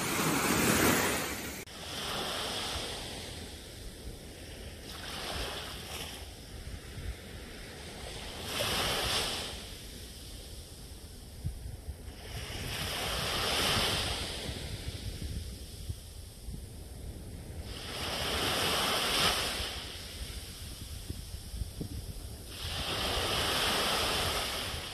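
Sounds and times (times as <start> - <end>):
small waves breaking on sand: 0.0 - 24.9.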